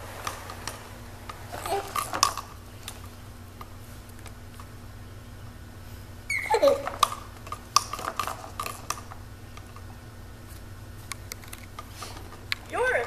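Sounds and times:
plastic toys clicking and rattling: 1.5s - 3.0s, 6.6s - 9.8s
baby squealing: 6.3s - 6.9s.

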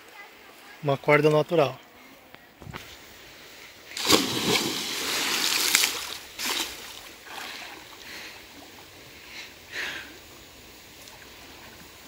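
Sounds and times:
swimming splashes: 3.9s - 7.8s
water splashing: 3.9s - 8.0s.

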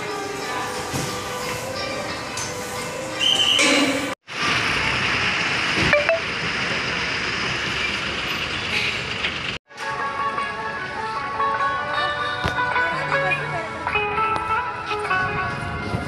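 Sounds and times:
music: 0.0s - 4.2s, 9.7s - 16.0s
diesel bus engine running: 4.3s - 9.6s.

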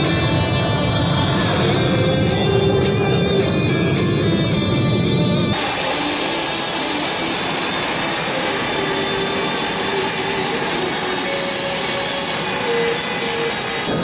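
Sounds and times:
model jet fan whine: 5.5s - 14.0s.

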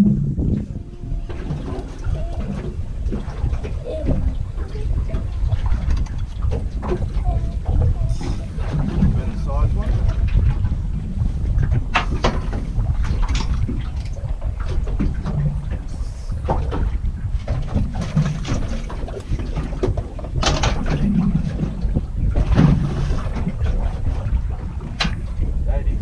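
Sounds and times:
wind rumbling on microphone: 0.0s - 26.0s
knocks and clatter of gear: 16.5s - 24.2s.

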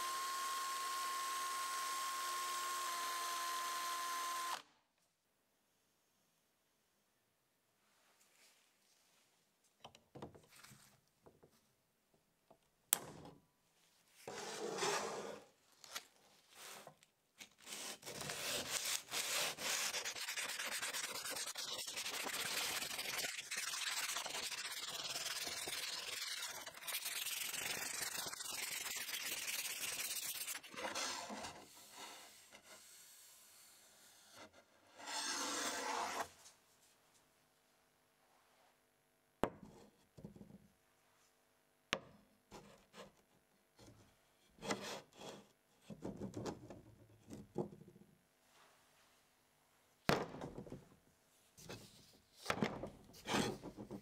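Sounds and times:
sandpaper rubbing on wood: 18.3s - 30.7s.

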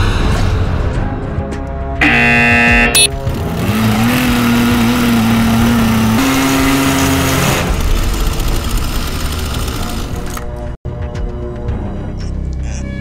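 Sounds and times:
loud buzzing tone: 2.0s - 7.2s.

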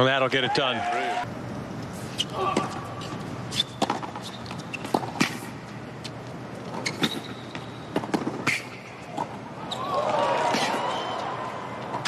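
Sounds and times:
low stadium hum: 0.0s - 12.0s.

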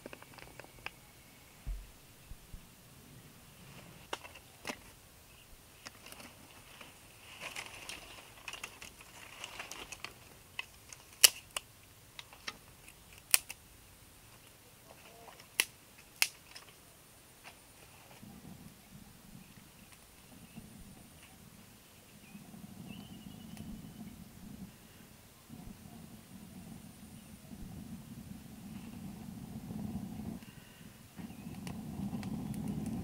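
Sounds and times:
faint high hiss: 0.0s - 33.0s
dry sticks clicking and snapping: 7.4s - 13.6s, 14.3s - 16.8s.

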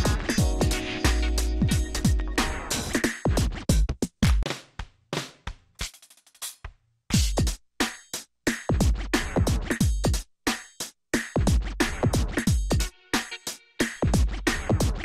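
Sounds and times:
deep kick drums: 0.0s - 0.9s, 1.6s - 2.4s
electronic music with drum machine: 0.0s - 4.4s, 7.2s - 15.0s.

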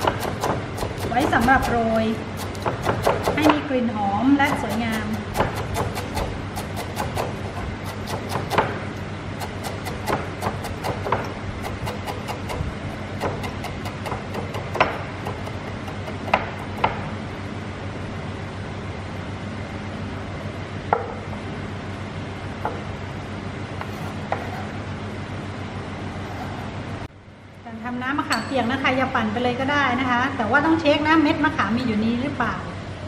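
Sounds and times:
knife chopping on wooden board: 0.0s - 3.6s, 4.4s - 17.1s, 23.8s - 24.7s
steady low hum: 0.0s - 33.0s.

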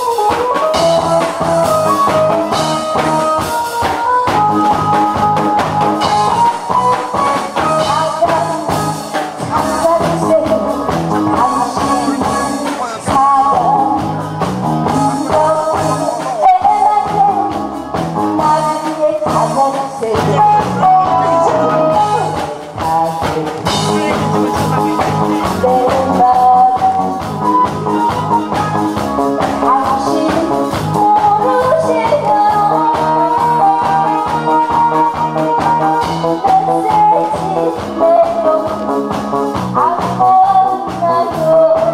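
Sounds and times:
instrumental accompaniment: 0.0s - 41.9s
woman singing into microphone: 0.0s - 41.9s.

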